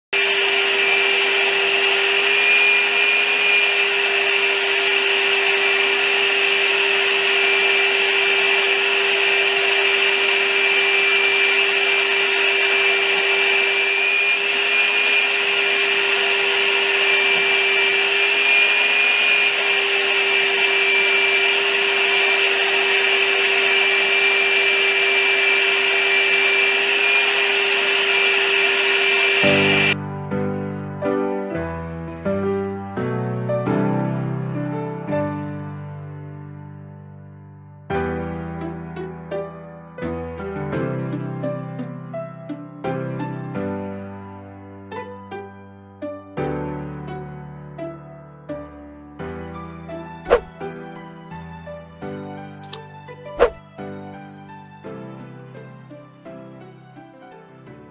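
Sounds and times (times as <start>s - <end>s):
constant whine: 0.2s - 30.0s
paint sprayer hissing: 0.2s - 30.0s, 50.3s - 50.5s, 53.4s - 53.6s.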